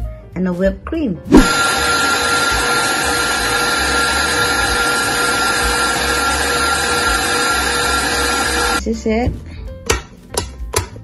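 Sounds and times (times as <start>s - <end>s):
stand mixer motor whining: 1.3s - 8.8s
whisk beating in metal bowl: 1.3s - 8.8s.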